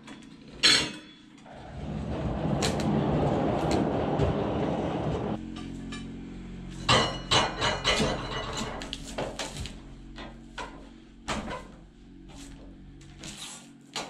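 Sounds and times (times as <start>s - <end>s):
low engine hum: 1.4s - 13.4s
metal clanks against log: 5.5s - 11.8s.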